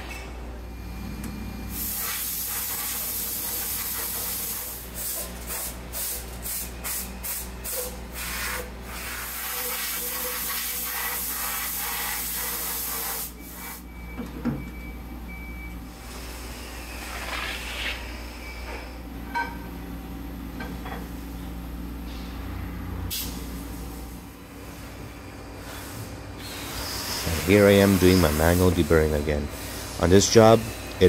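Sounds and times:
compressed air hissing: 1.7 - 13.8, 23.1 - 24.1, 25.6 - 30.5.

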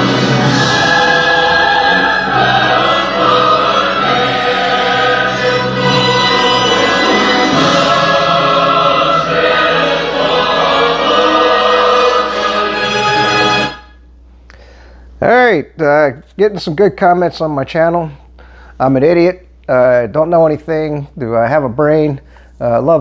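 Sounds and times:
choir singing: 0.0 - 13.9.

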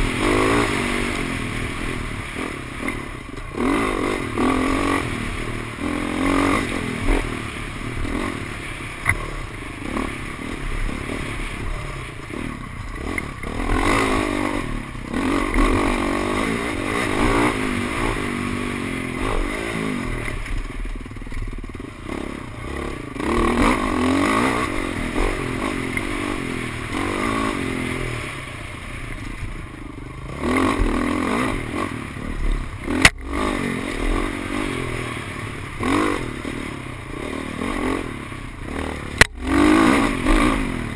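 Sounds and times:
dirt bike engine revving: 0.0 - 40.9.

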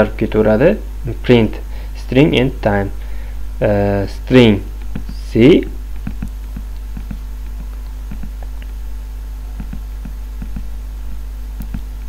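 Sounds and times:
low mains hum: 0.0 - 12.0
computer mouse clicks: 4.8 - 5.2, 6.0 - 8.8, 9.5 - 10.7, 11.6 - 12.0.

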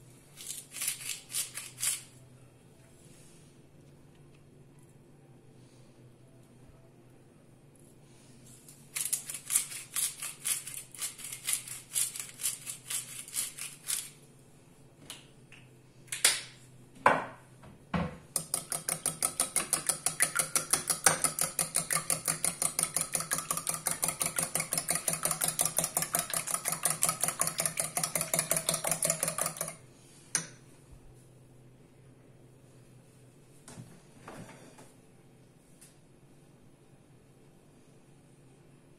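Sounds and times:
whisk beating eggs in a bowl: 18.4 - 29.8.

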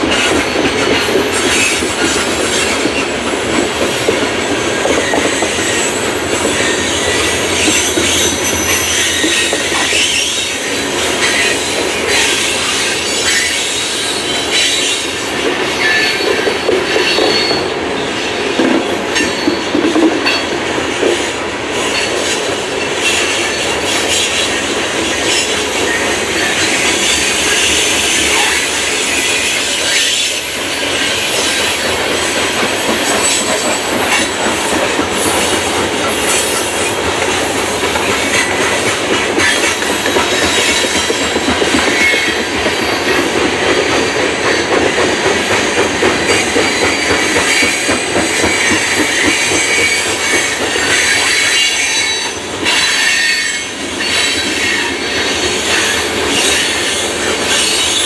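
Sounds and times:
freight train wheels rumbling: 0.0 - 58.0
high-pitched wheel squeal: 5.0 - 15.1, 46.3 - 58.0.

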